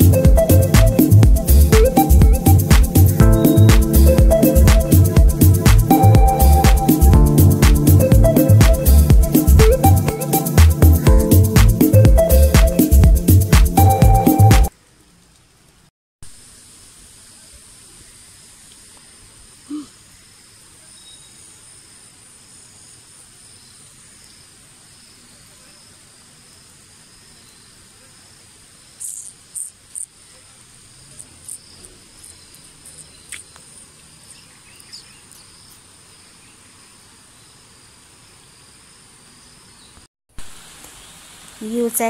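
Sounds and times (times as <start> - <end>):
insects chirring: 17.0 - 39.9.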